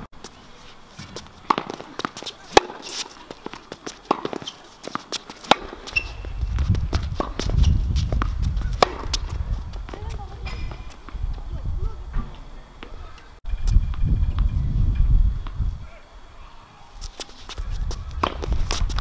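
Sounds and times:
footsteps on hard court: 0.2s - 11.4s, 17.0s - 19.0s
tennis ball pops off racket: 1.0s - 3.0s, 5.4s - 5.8s.

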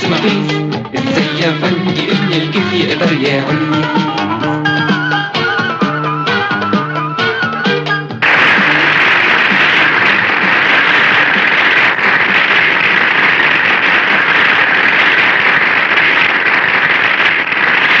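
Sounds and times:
loud steady hiss: 8.2s - 18.0s.

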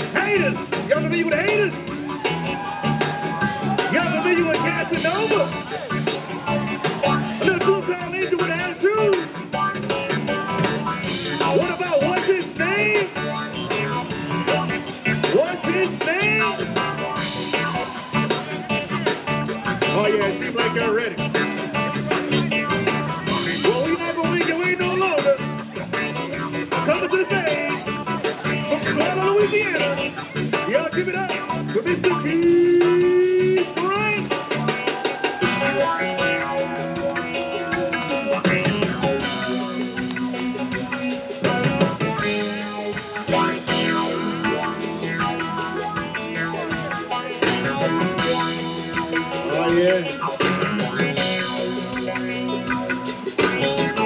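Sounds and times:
drums: 0.0s - 54.0s
electric guitars: 0.0s - 54.0s
person singing: 26.4s - 54.0s.

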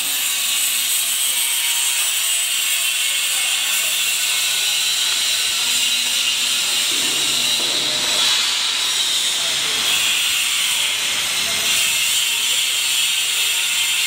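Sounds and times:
welding arc hissing: 0.0s - 14.0s.

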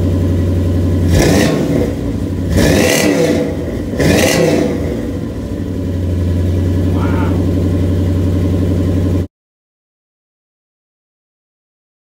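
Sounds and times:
engine revving and idling: 0.0s - 9.3s.

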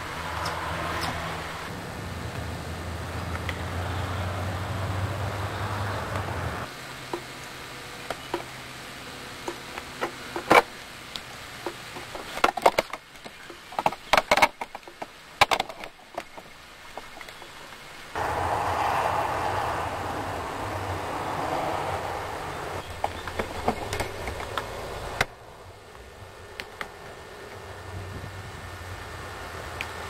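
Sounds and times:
steady noise with low hum: 0.0s - 30.0s
wood and bark cracking: 9.4s - 17.8s.

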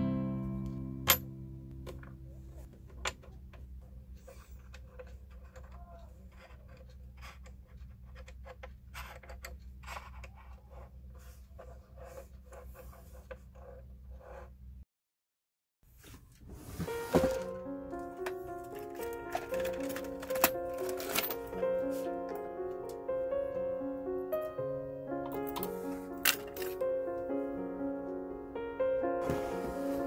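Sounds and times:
guitar chord ringing: 0.0s - 2.3s.

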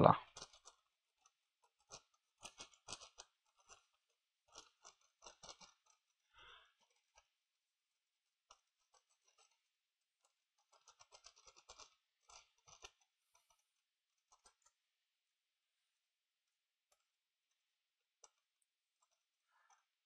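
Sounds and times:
soldering iron scraping and clicking: 0.4s - 7.4s.

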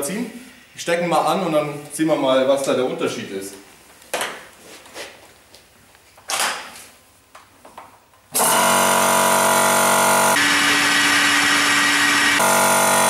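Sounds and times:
air compressor running: 8.3s - 13.0s.

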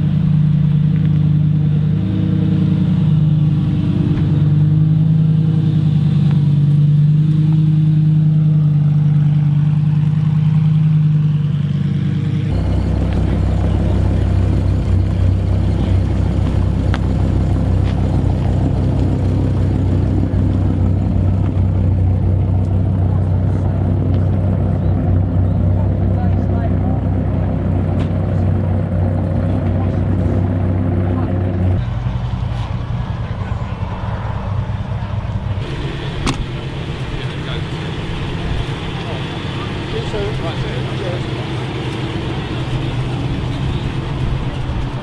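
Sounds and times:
car engines running: 0.0s - 45.0s.

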